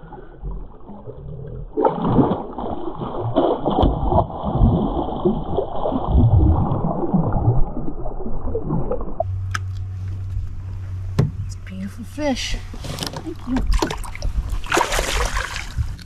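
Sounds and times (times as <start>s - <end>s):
fish splashing at water surface: 13.7s - 16.0s.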